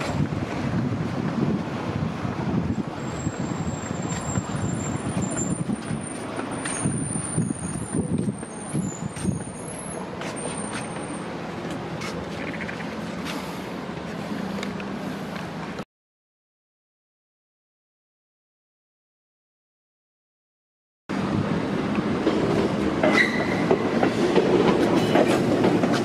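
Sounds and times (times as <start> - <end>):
wind buffeting microphone: 0.0 - 9.7
road traffic: 0.0 - 15.8, 21.1 - 26.0.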